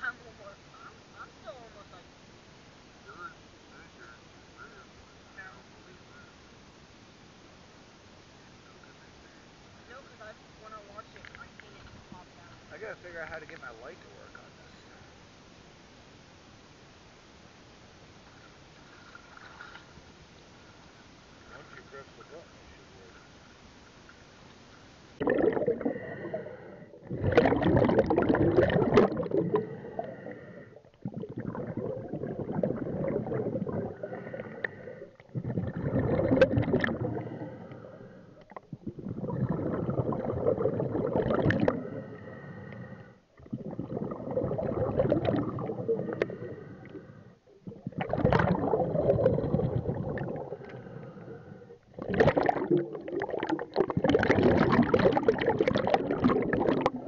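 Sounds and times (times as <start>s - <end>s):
exhaled bubbles rushing: 25.2s - 42.1s, 43.4s - 47.0s, 47.6s - 57.0s
diver breathing through regulator: 25.2s - 55.6s.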